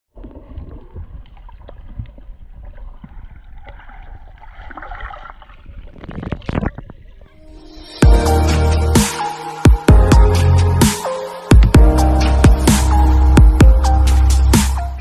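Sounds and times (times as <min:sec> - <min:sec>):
low underwater rumble: 0:00.1 - 0:07.4
underwater sloshing and gurgling: 0:00.1 - 0:07.5.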